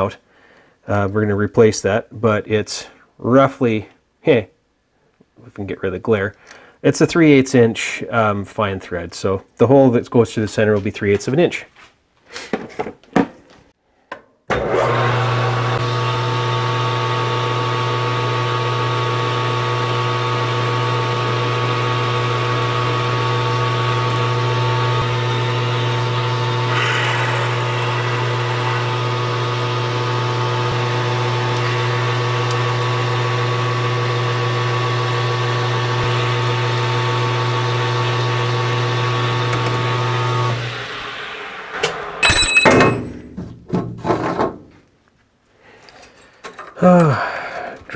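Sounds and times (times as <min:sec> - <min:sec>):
metal lathe motor humming: 0:14.8 - 0:41.9
cutting hiss: 0:26.7 - 0:29.0.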